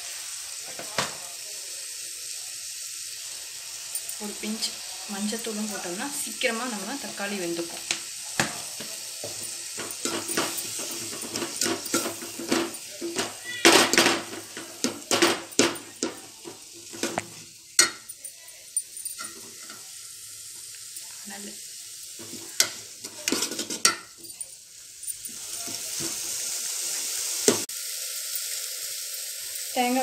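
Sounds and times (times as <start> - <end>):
food sizzling in oil: 0.0 - 30.0
spoon scraping and knocking pot: 7.8 - 18.2, 18.8 - 19.9, 22.2 - 24.4.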